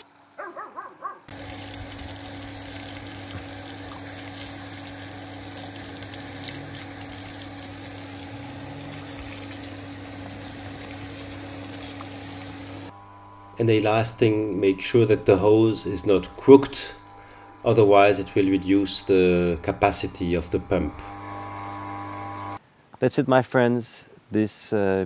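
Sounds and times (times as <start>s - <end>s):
water gushing from a hose: 1.3s - 12.9s
pump hum: 1.3s - 22.6s.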